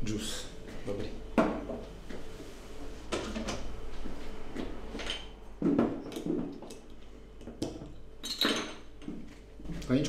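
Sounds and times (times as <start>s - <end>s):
glass clinking: 8.2s - 8.8s.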